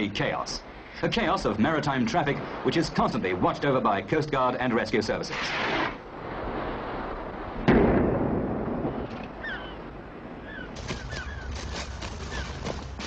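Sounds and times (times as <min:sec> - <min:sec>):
maroon explosion bang: 0:07.6 - 0:09.1.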